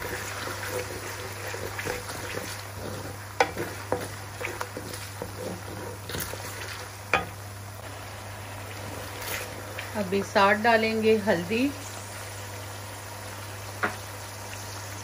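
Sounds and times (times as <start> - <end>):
wooden spoon stirring: 0.0 - 7.2
spices sizzling in hot oil: 0.0 - 15.0.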